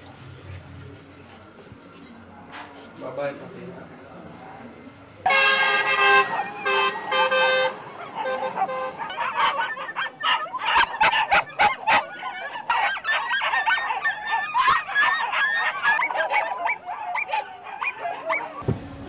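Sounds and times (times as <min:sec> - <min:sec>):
caged animals yelping and honking: 0:05.3 - 0:18.6.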